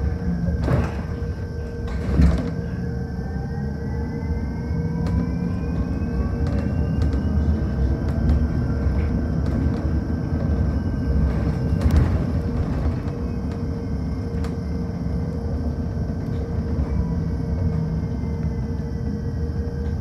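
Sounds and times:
bus jolt: 0.0s - 2.9s, 5.8s - 18.0s
electric drive whine: 0.0s - 20.0s
road and tyre rumble: 4.9s - 20.0s.

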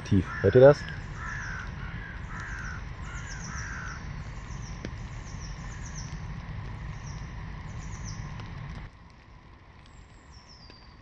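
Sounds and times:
crows cawing: 0.0s - 4.6s
songbirds chirping: 0.0s - 9.0s, 9.6s - 11.0s
steady low rumble: 0.0s - 11.0s.

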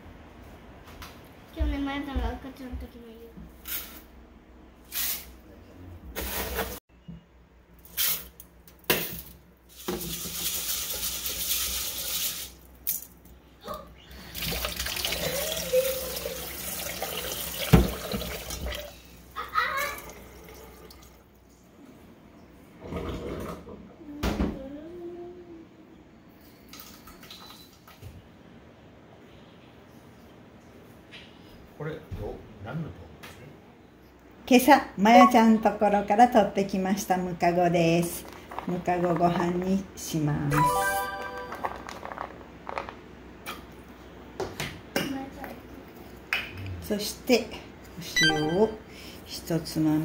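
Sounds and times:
tap water running into pot: 9.8s - 12.5s, 14.4s - 18.9s.

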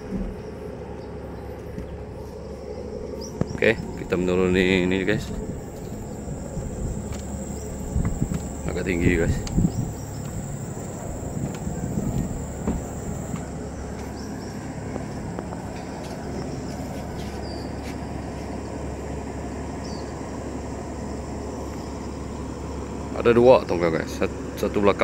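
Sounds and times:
high insect whine: 2.2s - 17.2s
tugboat diesel engine drone: 3.9s - 17.4s.

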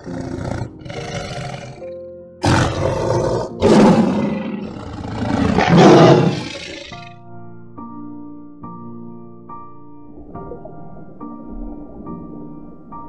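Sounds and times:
tiger growling and roaring: 0.0s - 7.0s.

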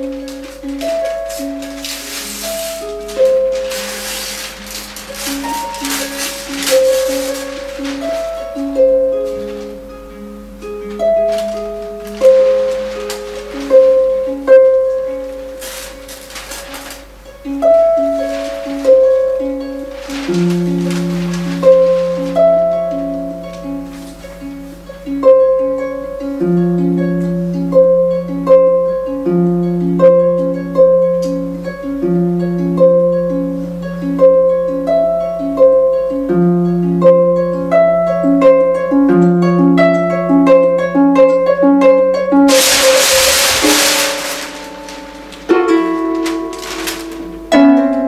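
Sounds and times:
heavy paper ripping: 0.0s - 9.9s, 11.2s - 17.2s, 18.1s - 24.4s, 42.5s - 47.6s
paper rustling: 0.0s - 10.1s, 10.9s - 24.8s, 42.4s - 47.7s
harp playing plucked figure: 0.0s - 48.0s.

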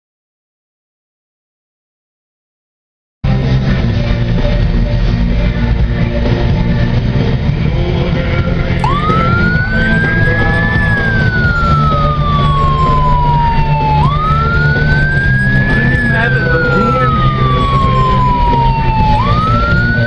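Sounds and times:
low vehicle cab drone: 8.6s - 20.0s
toy police siren wailing: 8.8s - 20.0s.

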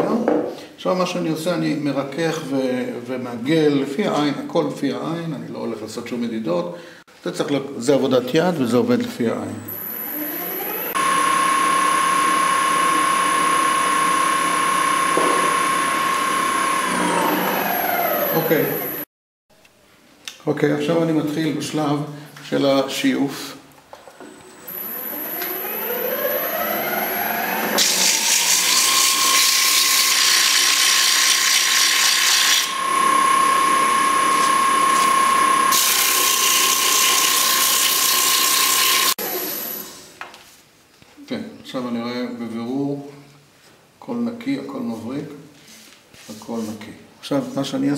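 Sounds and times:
wood lathe whining: 9.7s - 19.1s, 24.7s - 40.0s.

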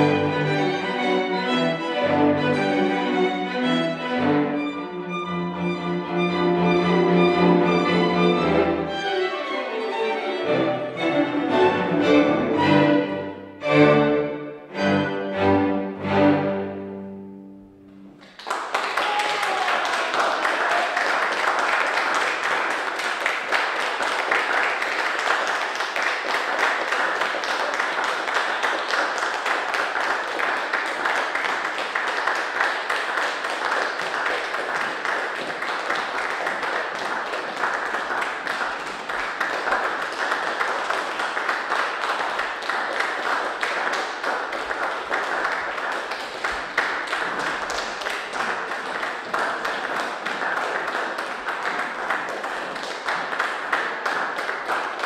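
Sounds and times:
audience applauding: 18.0s - 55.0s.

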